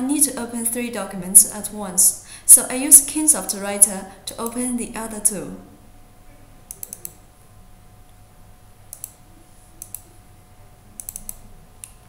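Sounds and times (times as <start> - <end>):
faint steady hum: 0.0 - 12.0
computer mouse clicking: 6.7 - 7.2, 8.9 - 9.2, 9.8 - 10.1, 11.0 - 12.0.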